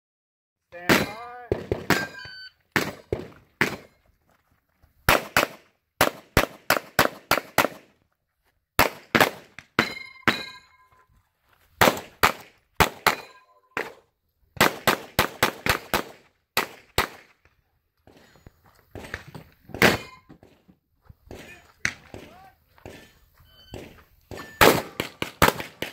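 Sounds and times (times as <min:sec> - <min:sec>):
steel targets ringing: 0:01.9 - 0:03.1, 0:09.8 - 0:11.0, 0:13.1 - 0:13.7
rapid gunfire: 0:24.6 - 0:25.9.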